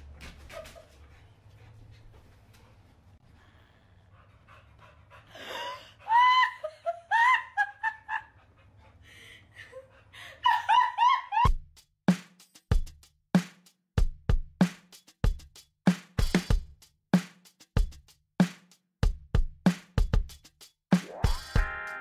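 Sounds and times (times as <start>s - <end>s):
woman shrieking laughter: 5.7s - 8.3s, 9.7s - 11.5s
drum machine beats: 11.5s - 22.0s.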